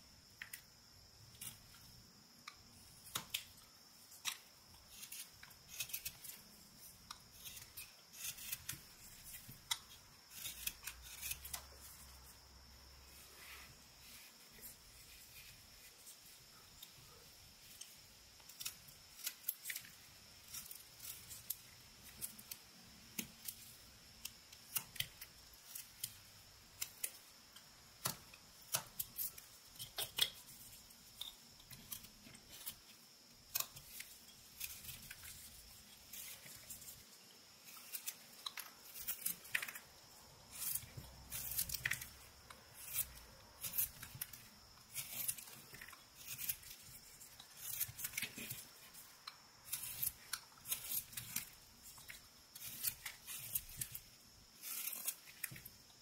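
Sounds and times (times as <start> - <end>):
knife cutting wood shavings: 2.8 - 12.4, 27.9 - 55.9.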